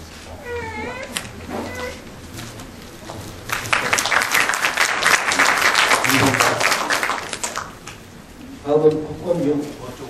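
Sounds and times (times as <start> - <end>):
audience applauding: 3.0 - 8.1.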